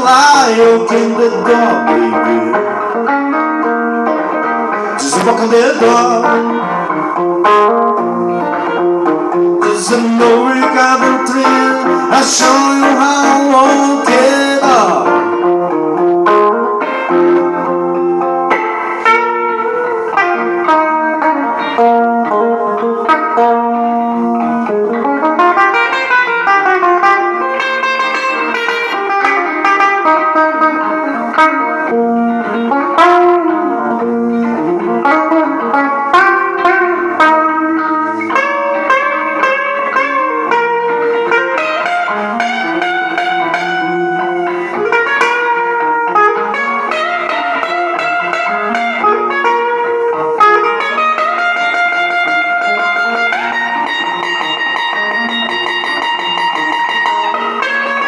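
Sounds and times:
electric guitar playing blues: 0.0 - 58.0.

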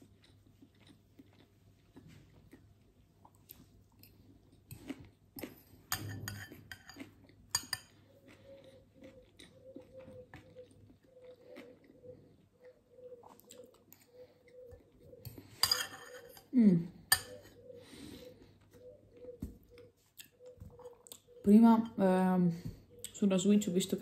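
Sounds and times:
quiet chewing: 0.0 - 21.5
fork clinking against glass bowl: 15.6 - 16.5, 17.1 - 17.5.

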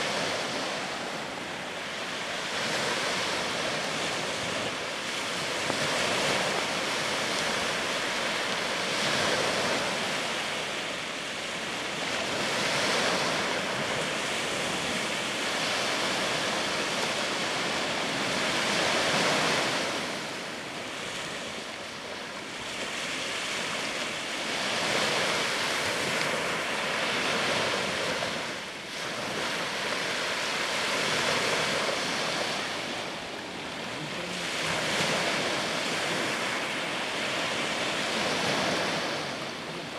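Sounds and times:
small waves washing on shore: 0.0 - 39.9.

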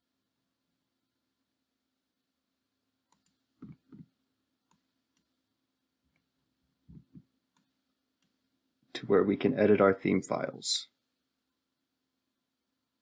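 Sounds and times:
computer mouse clicks: 3.1 - 4.0, 6.9 - 8.4.

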